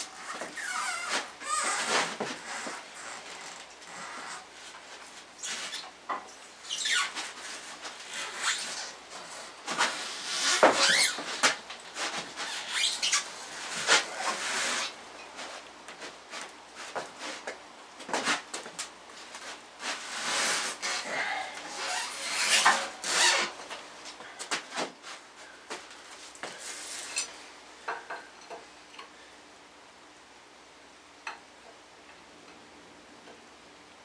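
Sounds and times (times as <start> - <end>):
short high squeals: 0.2 - 3.2, 10.2 - 11.2, 20.3 - 23.6
engine hoist squeaking and creaking: 10.5 - 11.2, 21.6 - 23.5.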